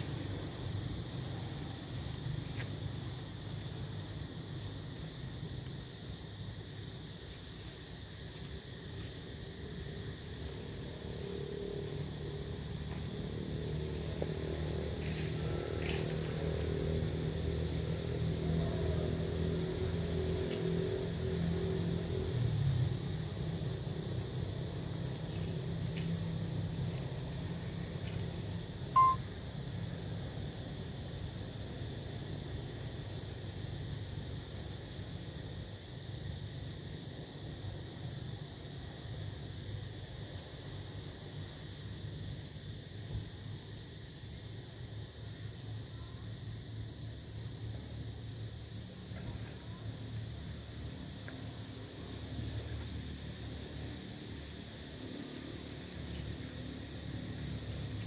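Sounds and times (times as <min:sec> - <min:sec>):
low rumble and hiss: 0:00.0 - 0:58.0
high-pitched insect drone: 0:04.6 - 0:23.8, 0:28.0 - 0:29.5
faint hum: 0:28.0 - 0:29.4
thin high-pitched tone: 0:29.0 - 0:29.2.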